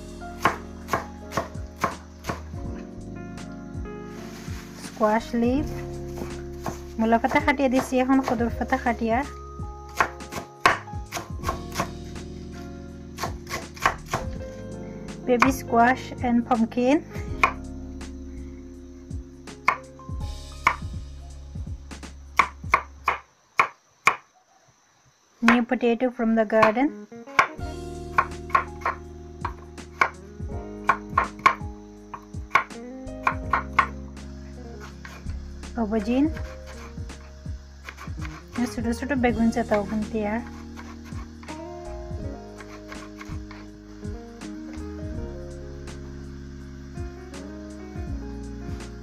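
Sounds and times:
background music: 0.0s - 23.2s, 26.6s - 49.0s
knife chopping on wooden board: 0.4s - 2.5s, 5.6s - 8.5s, 10.0s - 11.9s, 13.2s - 14.4s, 22.4s - 24.2s, 28.1s - 30.2s, 30.9s - 33.9s, 34.8s - 35.2s, 36.4s - 38.6s, 39.7s - 41.5s, 42.6s - 43.6s.

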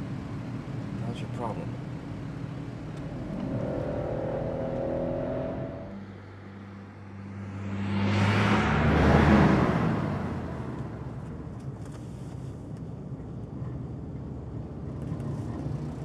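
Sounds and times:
car speeding past: 3.0s - 11.2s.

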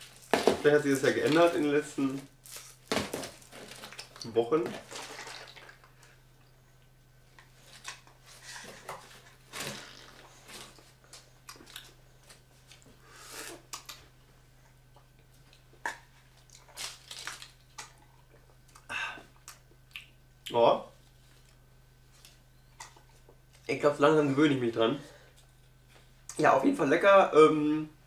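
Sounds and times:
paper packing rustling: 0.0s - 5.5s.

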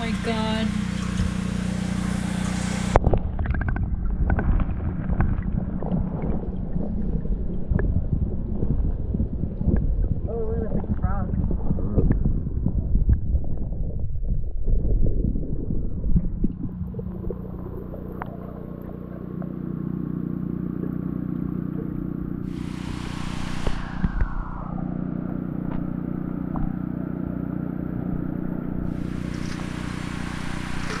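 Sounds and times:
stream water rushing: 0.0s - 3.0s, 22.4s - 26.2s, 28.8s - 31.0s.

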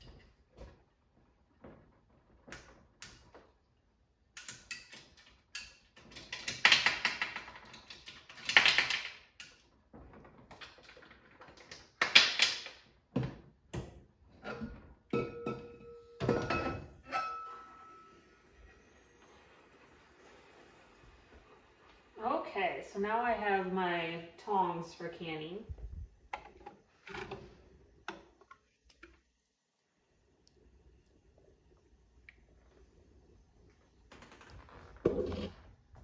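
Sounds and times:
metal lid ringing: 15.2s - 17.9s.

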